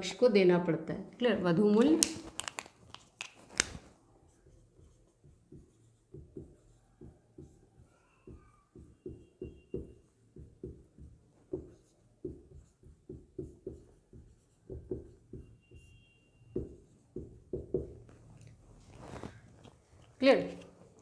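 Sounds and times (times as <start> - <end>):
marker pen writing on whiteboard: 1.6 - 21.0
faint high squeak of marker tip: 7.8 - 9.8.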